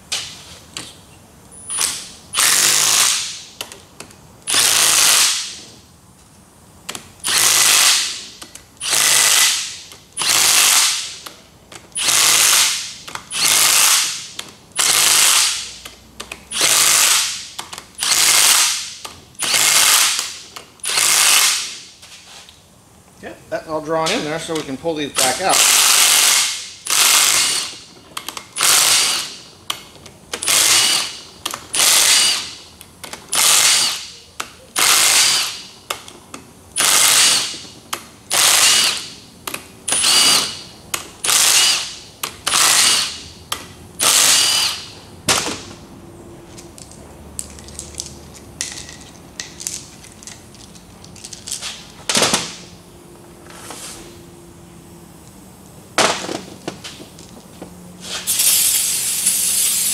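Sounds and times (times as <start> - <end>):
cordless power driver bursts: 34.8 - 35.7, 36.8 - 37.7, 38.3 - 39.2, 39.9 - 43.2, 44.0 - 44.9
clicks of parts handled: 46.5 - 52.6.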